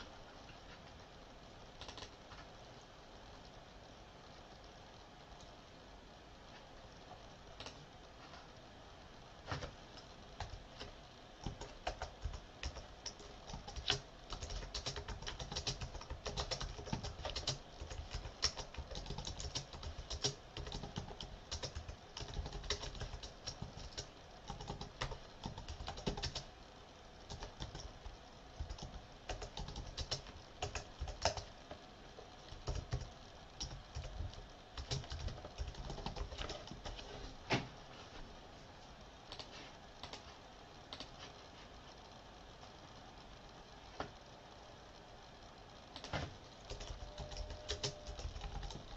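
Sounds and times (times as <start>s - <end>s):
keyboard typing: 1.8s - 2.5s, 7.6s - 7.8s, 10.4s - 26.5s, 27.3s - 31.6s, 32.5s - 37.1s, 39.3s - 40.3s, 40.9s - 41.2s, 46.0s - 48.9s.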